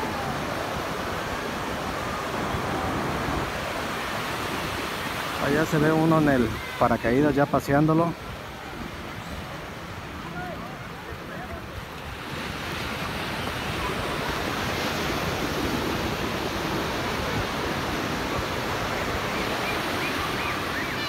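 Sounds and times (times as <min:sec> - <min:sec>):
ocean surf washing onto beach: 0:00.0 - 0:21.0
faint voices: 0:05.4 - 0:15.4.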